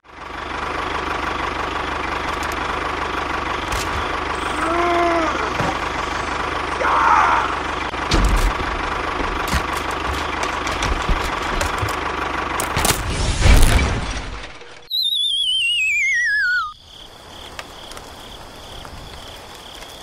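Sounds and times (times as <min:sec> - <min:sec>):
tractor engine idling: 0:00.0 - 0:13.1
rising and falling whistle: 0:14.9 - 0:16.8.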